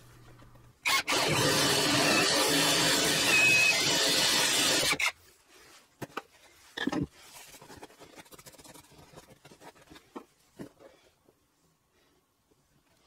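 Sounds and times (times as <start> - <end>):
drill cutting through wood: 0.8 - 5.2.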